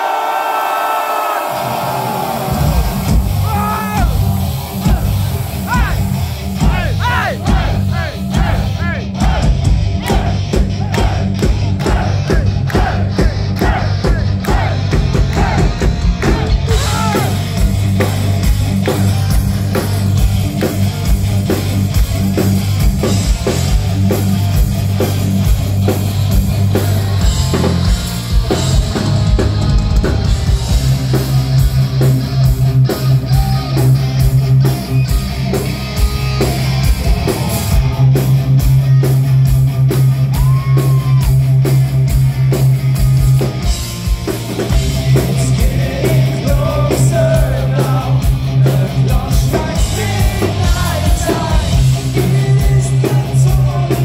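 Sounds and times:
distorted electric guitars: 0:01.5 - 0:54.0
drum kit: 0:01.5 - 0:54.0
melodic guitar lead line: 0:13.3 - 0:54.0.

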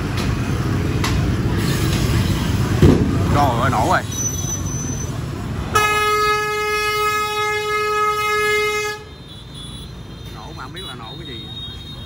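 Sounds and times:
street traffic rumble: 0:00.0 - 0:12.0
truck horn steady note: 0:05.7 - 0:09.9.

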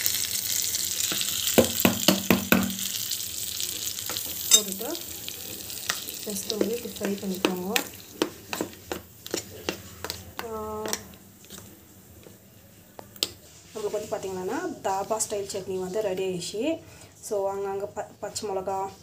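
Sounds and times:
hot oil sizzling: 0:00.0 - 0:12.3
spoon stirring in bowl: 0:04.1 - 0:04.8, 0:05.8 - 0:14.1
pan clinking: 0:04.4 - 0:04.8.

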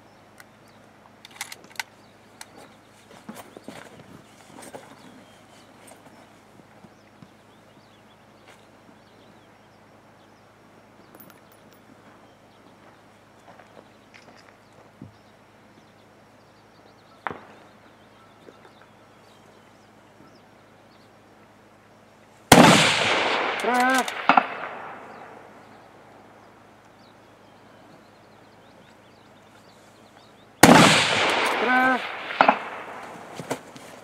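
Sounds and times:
rifle shot with echo: 0:17.2 - 0:17.6, 0:22.5 - 0:25.7, 0:30.6 - 0:33.3.

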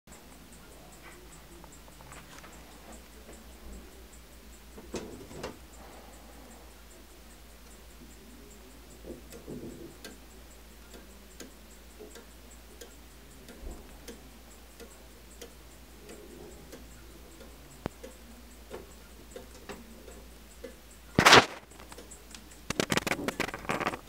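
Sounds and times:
clock ticking softly: 0:00.1 - 0:24.0
sharp click: 0:21.1 - 0:24.0.

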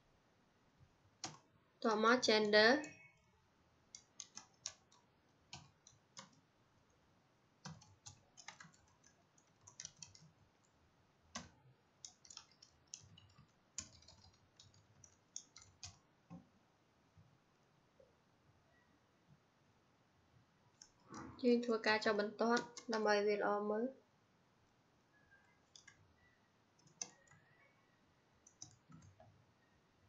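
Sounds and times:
typing on computer keyboard: 0:01.2 - 0:01.5, 0:03.9 - 0:06.5, 0:07.6 - 0:16.4, 0:20.8 - 0:21.3, 0:22.3 - 0:23.1, 0:25.2 - 0:27.7, 0:28.4 - 0:29.4.

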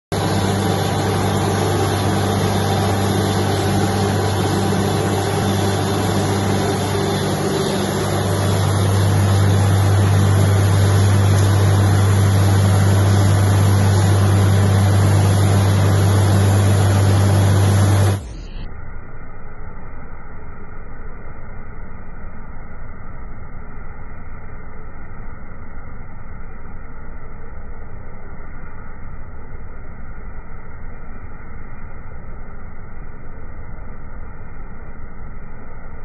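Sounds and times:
air and water rushing from bore: 0:00.1 - 0:18.2
drilling rig engine hum: 0:00.1 - 0:18.6.

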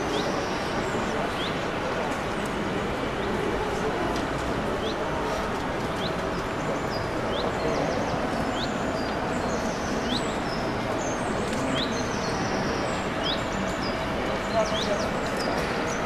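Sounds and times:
small birds chirping: 0:05.8 - 0:16.0.

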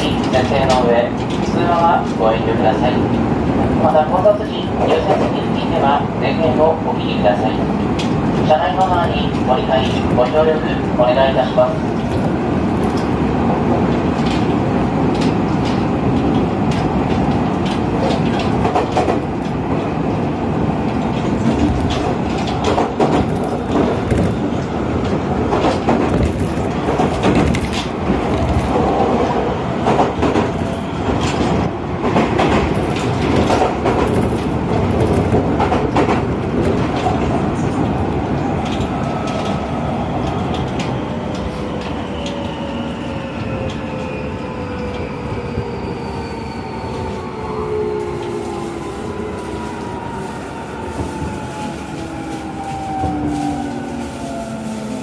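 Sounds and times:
train wheels rumbling on rails: 0:00.0 - 0:55.0.

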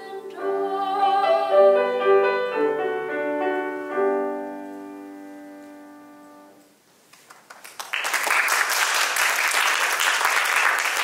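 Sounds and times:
audience clapping: 0:07.1 - 0:11.0.

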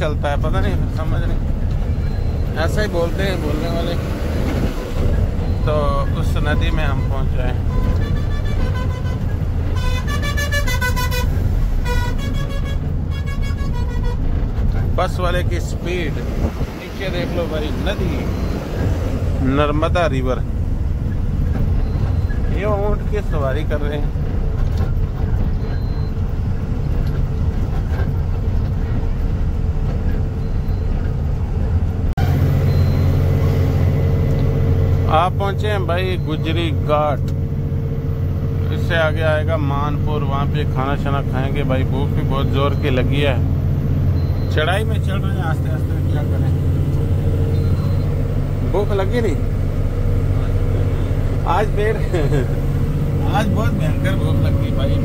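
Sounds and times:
road noise: 0:00.0 - 0:55.0
truck engine rumble: 0:00.0 - 0:55.0
vehicle horn honking: 0:06.9 - 0:14.4.

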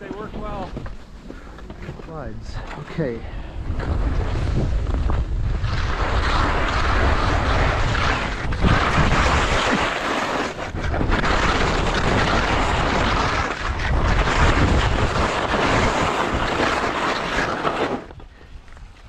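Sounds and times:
skis sliding over snow: 0:00.0 - 0:19.0
wind noise on microphone: 0:00.0 - 0:19.0.

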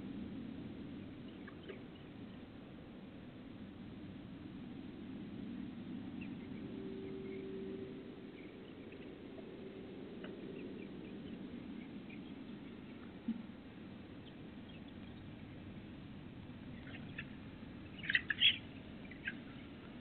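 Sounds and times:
low steady hum: 0:00.0 - 0:20.0
chickens clucking: 0:16.8 - 0:19.5.

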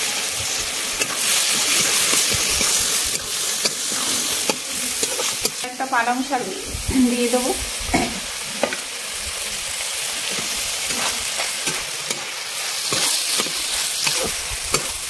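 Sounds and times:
leaves sizzling in hot oil: 0:00.0 - 0:15.0
spatula scraping pan: 0:01.0 - 0:05.6, 0:10.2 - 0:15.0.

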